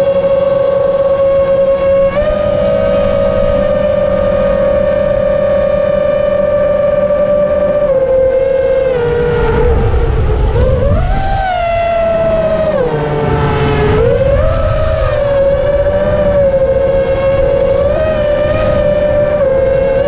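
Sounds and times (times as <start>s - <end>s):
drone motors and propellers whining: 0.0s - 20.0s
low rumble: 7.7s - 20.0s.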